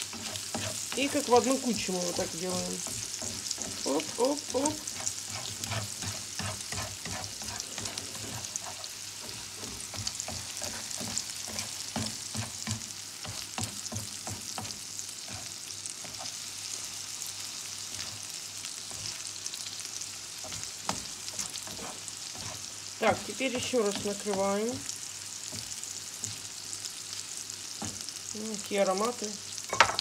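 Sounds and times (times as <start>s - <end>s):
spatula scraping a pan: 0.0s - 17.0s, 17.6s - 26.4s
oil sizzling in a frying pan: 0.0s - 30.0s.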